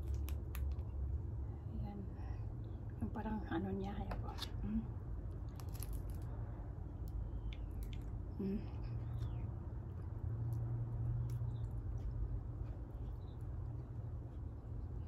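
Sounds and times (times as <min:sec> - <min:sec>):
shrimp shells crackling: 0:05.3 - 0:06.4
chewing: 0:07.4 - 0:08.2.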